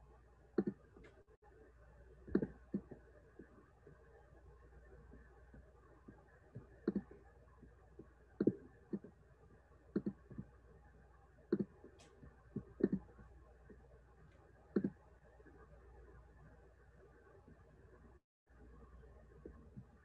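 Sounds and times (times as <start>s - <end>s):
computer mouse clicking: 0.6s - 1.2s, 6.8s - 7.1s, 9.9s - 10.5s, 11.5s - 13.2s, 14.7s - 15.0s.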